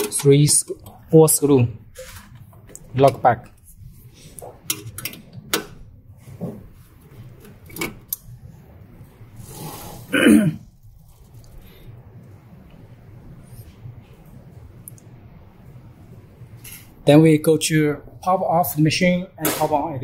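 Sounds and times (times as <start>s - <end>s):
noisy burst: 0.0s - 20.0s.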